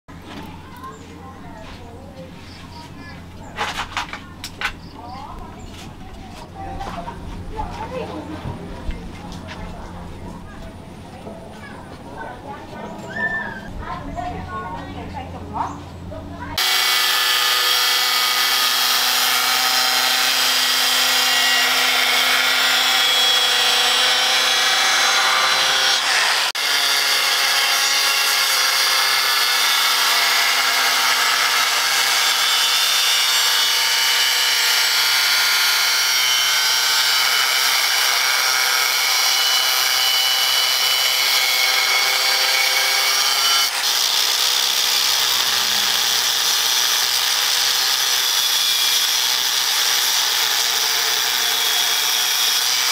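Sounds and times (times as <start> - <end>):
angle grinder cutting steel: 16.6 - 52.9.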